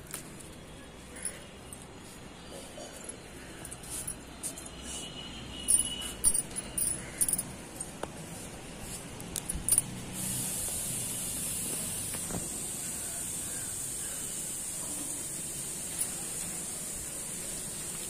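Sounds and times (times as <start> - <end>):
rustling and clicks of plants: 0.0 - 5.1, 5.7 - 12.6, 14.8 - 18.0
steady high hiss: 9.6 - 18.0.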